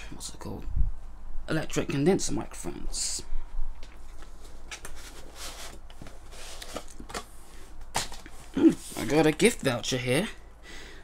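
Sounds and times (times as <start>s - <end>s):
cardboard box rustling and scraping: 4.3s - 7.2s.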